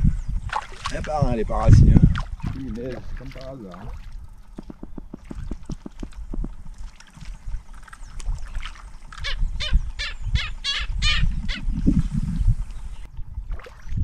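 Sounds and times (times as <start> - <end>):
steady low rumble: 0.0 - 14.0
low animal pulses: 3.8 - 9.2.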